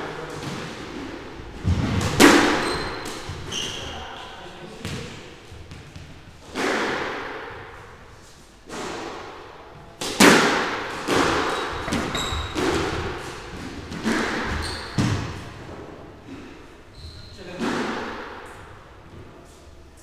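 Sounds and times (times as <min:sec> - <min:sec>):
squash ball hits: 0:00.3 - 0:03.8, 0:04.8 - 0:07.8, 0:08.7 - 0:16.0, 0:17.5 - 0:18.7
shoes squeaking on wooden floor: 0:02.5 - 0:04.4, 0:11.2 - 0:15.8, 0:16.9 - 0:17.6.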